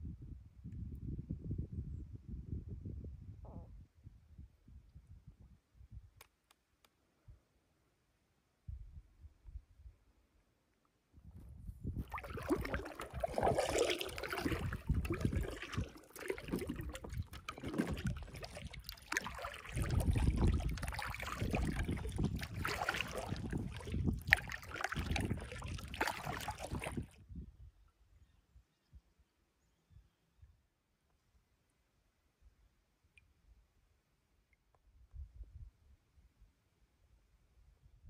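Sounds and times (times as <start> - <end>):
water dripping: 12.0 - 27.0
paddle splashing in water: 12.0 - 27.2.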